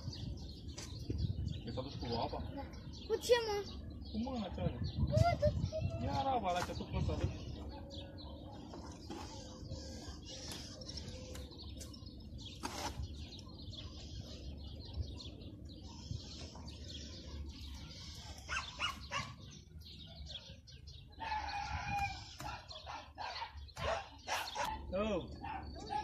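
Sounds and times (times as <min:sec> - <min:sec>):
low wind rumble: 0:00.0 - 0:02.9.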